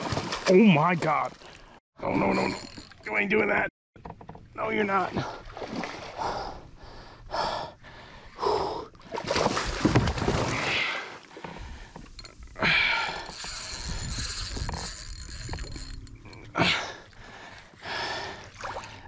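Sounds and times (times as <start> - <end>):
man breathing and gasping: 6.1 - 9.0, 10.6 - 14.1, 16.4 - 19.0.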